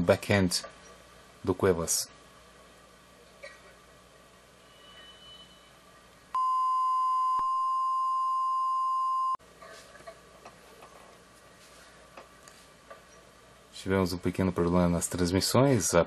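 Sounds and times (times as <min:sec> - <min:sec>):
test tone: 0:06.4 - 0:09.4.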